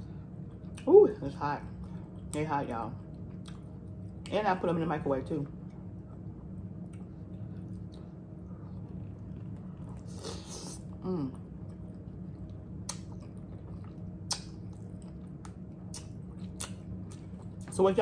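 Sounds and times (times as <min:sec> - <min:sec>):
chewing: 0:03.0 - 0:04.2, 0:06.0 - 0:17.7.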